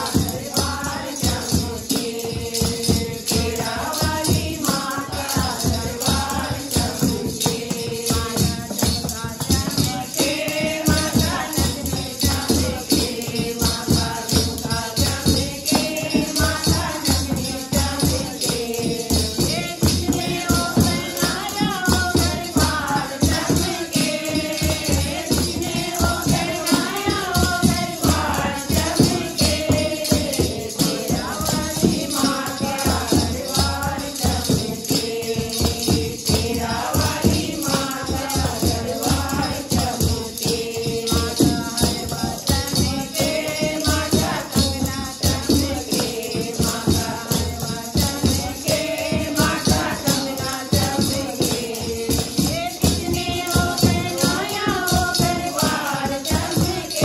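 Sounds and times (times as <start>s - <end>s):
hand drum beat: 0.0s - 57.0s
women singing together: 0.0s - 57.0s
wooden clappers with jingles: 0.0s - 57.0s.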